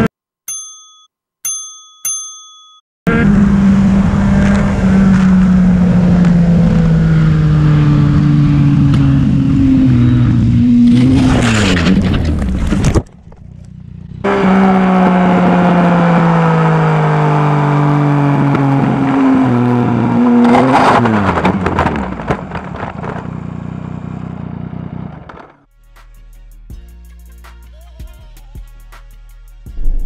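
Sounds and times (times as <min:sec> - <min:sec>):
motorcycle engine running: 0:03.1 - 0:11.1, 0:13.1 - 0:19.1, 0:22.0 - 0:25.7, 0:29.7 - 0:30.0
motorcycle scraping and clattering: 0:10.8 - 0:14.2, 0:24.8 - 0:25.7.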